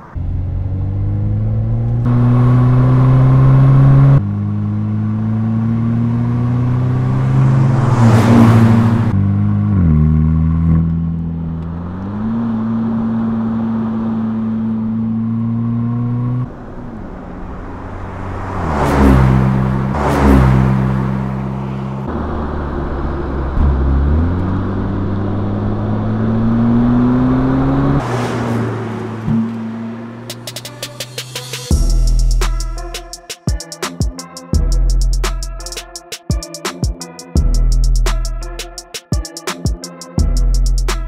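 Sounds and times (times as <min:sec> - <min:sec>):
car engine accelerating: 0:00.0 - 0:32.9
car passing whoosh: 0:04.9 - 0:09.4, 0:11.4 - 0:31.7.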